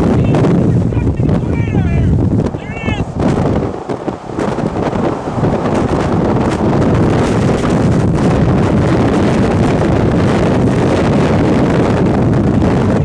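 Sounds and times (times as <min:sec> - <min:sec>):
strong wind on microphone: 0:00.0 - 0:13.0.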